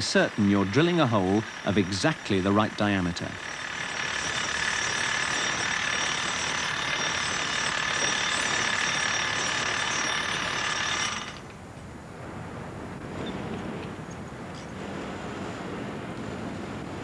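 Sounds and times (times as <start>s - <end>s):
power drill grinding into concrete: 3.3s - 11.5s.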